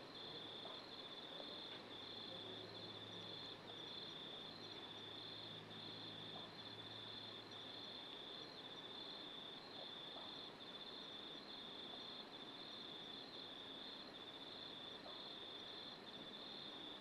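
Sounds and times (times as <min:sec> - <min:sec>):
faint background hiss: 0:00.0 - 0:17.0.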